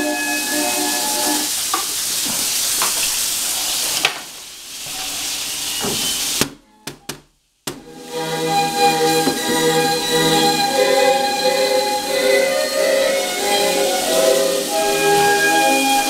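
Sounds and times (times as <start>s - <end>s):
music: 0.0s - 1.5s, 7.8s - 16.0s
steady hiss: 0.0s - 6.6s, 7.3s - 16.0s.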